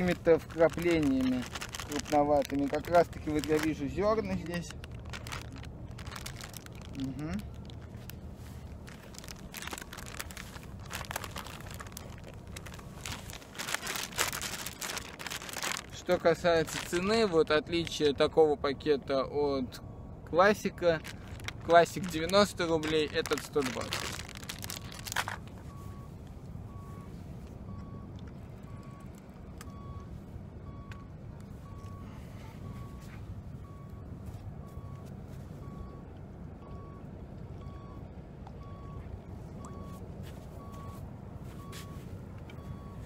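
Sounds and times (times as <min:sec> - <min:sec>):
plastic bag crinkling: 0:00.0 - 0:17.3, 0:20.9 - 0:25.6
low steady rumble: 0:00.0 - 0:43.0
reversing alarm beeping: 0:25.7 - 0:40.0, 0:40.6 - 0:41.0, 0:41.6 - 0:43.0.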